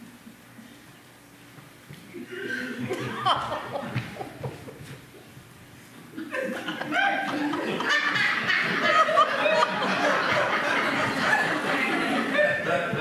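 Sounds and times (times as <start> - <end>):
people laughing: 2.1 - 5.3, 6.1 - 13.0.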